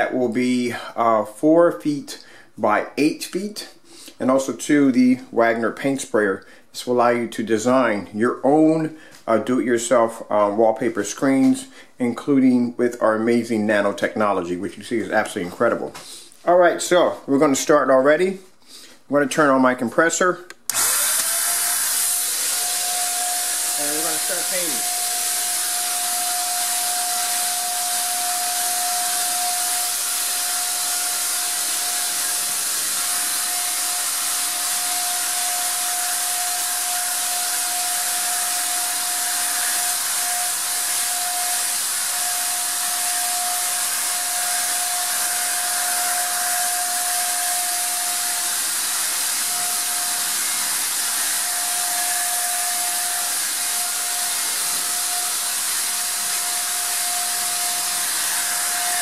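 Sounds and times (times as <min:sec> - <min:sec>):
electric paint sprayer running: 0:20.7 - 0:59.0.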